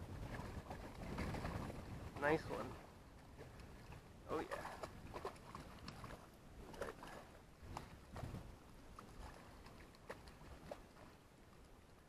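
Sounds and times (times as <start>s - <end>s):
fish splashing in water: 3.4s - 11.2s.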